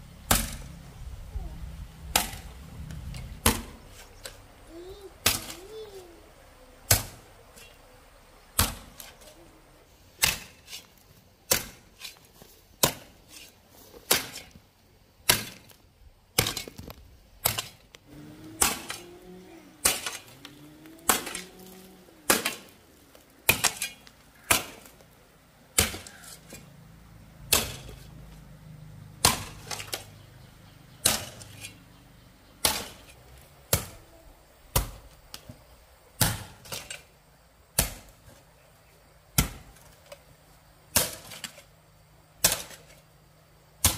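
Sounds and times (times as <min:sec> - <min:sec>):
sharp chopping strikes: 0:00.3 - 0:00.7, 0:02.1 - 0:02.4, 0:03.4 - 0:03.8, 0:06.9 - 0:07.2, 0:08.6 - 0:09.1, 0:10.2 - 0:10.8, 0:11.5 - 0:11.9, 0:15.2 - 0:15.7, 0:18.5 - 0:19.0, 0:19.8 - 0:20.3, 0:21.0 - 0:21.5, 0:22.2 - 0:22.7, 0:23.4 - 0:24.9, 0:25.7 - 0:26.6, 0:27.5 - 0:28.0, 0:29.2 - 0:30.1, 0:31.0 - 0:31.6, 0:32.6 - 0:33.1, 0:34.7 - 0:35.0, 0:36.2 - 0:36.8, 0:37.8 - 0:38.1, 0:39.4 - 0:39.7.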